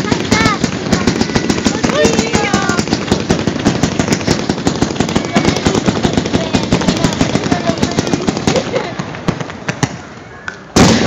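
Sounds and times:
fireworks rapid bangs: 0.0 - 11.0.

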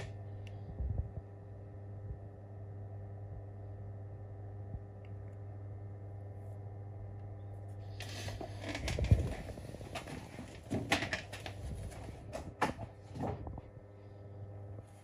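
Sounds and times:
low electrical hum: 0.0 - 15.0
objects rustling and knocking: 8.0 - 13.7.

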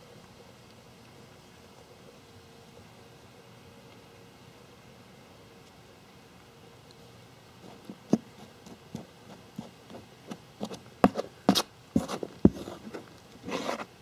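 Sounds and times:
hand rustling through soil: 7.6 - 13.9
trowel scraping soil: 7.7 - 13.9.

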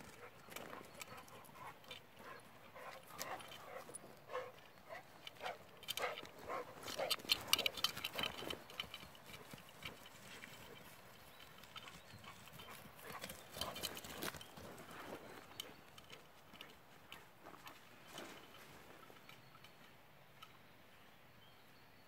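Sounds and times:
footsteps crunching on stony ground: 0.0 - 19.2.

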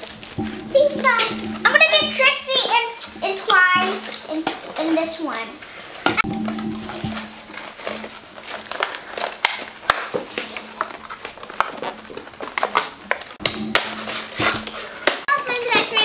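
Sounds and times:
plastic toys and packaging handled: 7.5 - 13.4, 14.1 - 16.0.

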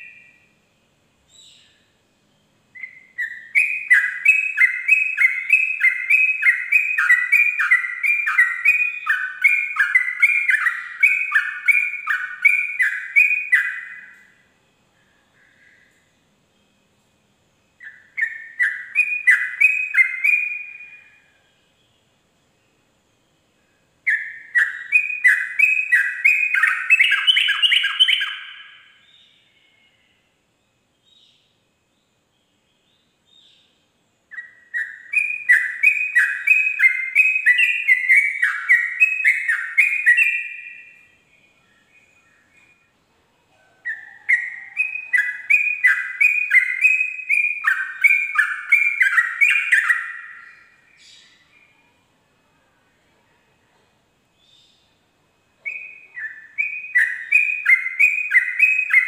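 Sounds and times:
bulbul singing bubbling song: 1.2 - 16.9, 17.6 - 30.2, 43.8 - 51.8, 55.6 - 59.0.

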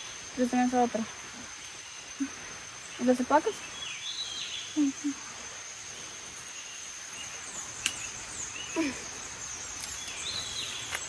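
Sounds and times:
high-pitched insect drone: 0.0 - 11.0
bird chirps: 1.6 - 5.2, 6.4 - 11.0.

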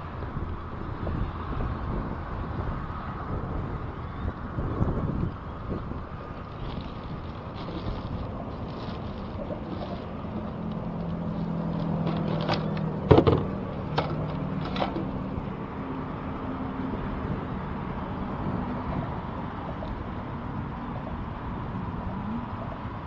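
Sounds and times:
steady outdoor noise: 0.0 - 23.0
fishing gear knocking in plastic crate: 12.1 - 15.1.

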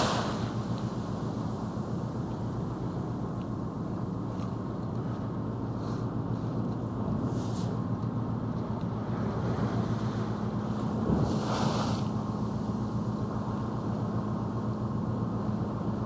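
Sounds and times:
water rushing: 0.0 - 3.4, 9.4 - 13.4
wind hiss: 0.0 - 3.7, 9.5 - 14.0
ferry engines droning: 0.0 - 16.0.

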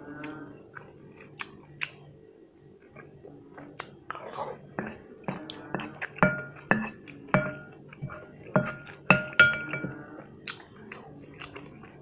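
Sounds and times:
spoon clinking on glass bowl: 6.2 - 10.0.

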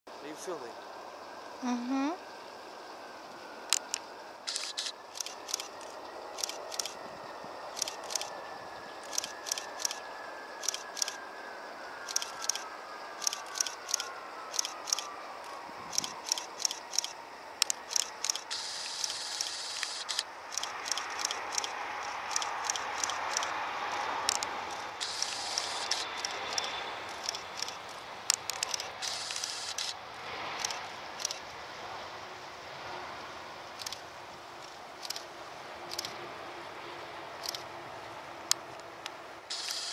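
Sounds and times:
jet engine whine: 2.2 - 39.9
jet engine rush: 3.1 - 39.9
sharp crackling clicks: 3.7 - 7.0, 7.7 - 8.3, 9.0 - 10.0, 10.6 - 11.2, 12.0 - 12.6, 13.2 - 30.0, 30.6 - 31.4, 33.8 - 34.0, 38.5 - 39.9.

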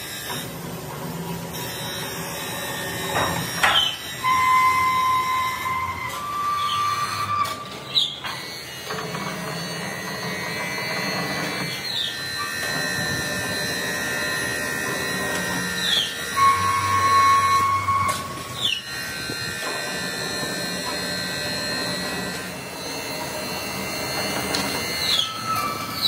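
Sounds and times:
workshop machinery whine: 0.0 - 26.0
short falling squeal: 22.8 - 26.0.

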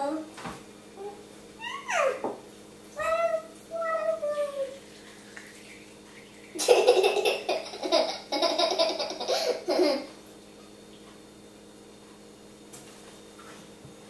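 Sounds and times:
child laughing: 1.6 - 2.3, 6.6 - 10.2.

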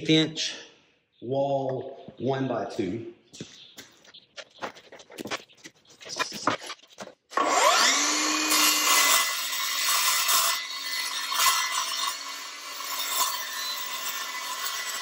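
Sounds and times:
circular saw cutting metal: 7.4 - 15.0.

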